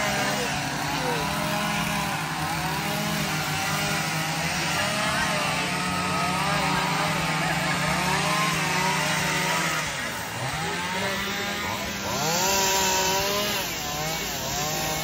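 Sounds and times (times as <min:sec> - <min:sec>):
chainsaws revving: 0:00.0 - 0:15.0.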